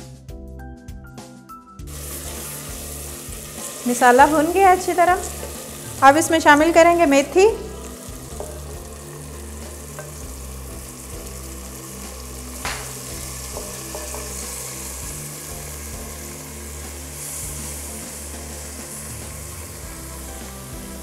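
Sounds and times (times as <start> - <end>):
spices sizzling in a pot: 1.8 - 21.0
sharp knock: 12.6 - 13.0.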